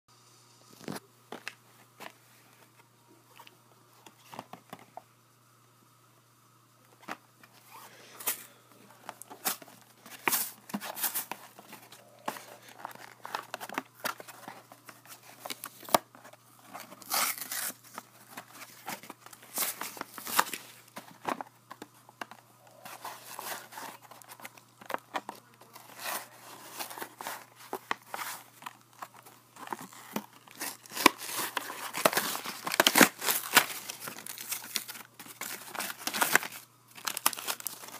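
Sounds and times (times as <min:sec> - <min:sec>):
plastic packaging being torn open: 0:17.0 - 0:18.0, 0:28.9 - 0:37.9.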